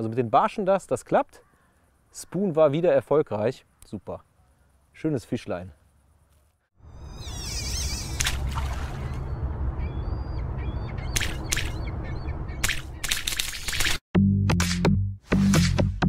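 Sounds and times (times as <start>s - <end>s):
birds calling: 1.3s - 2.7s, 6.9s - 13.8s
short harsh calls: 7.0s - 8.5s
low rumble: 8.4s - 13.0s.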